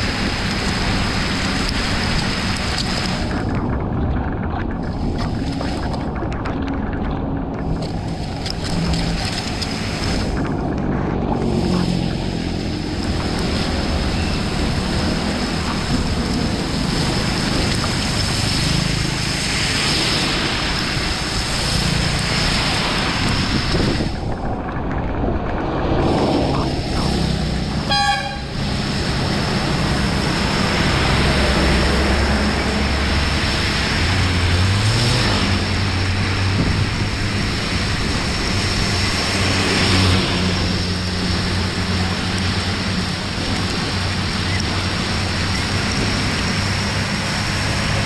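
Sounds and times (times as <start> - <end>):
low engine hum: 0.0 - 48.0
rain: 0.0 - 48.0
traffic on wet road: 0.0 - 48.0
vehicle horn toot: 27.8 - 28.6.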